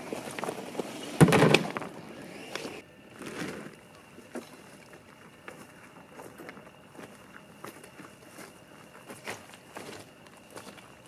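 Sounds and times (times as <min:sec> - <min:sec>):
kayak hull scraping over stones: 0:00.0 - 0:03.8
footsteps crunching on stones: 0:03.2 - 0:11.0.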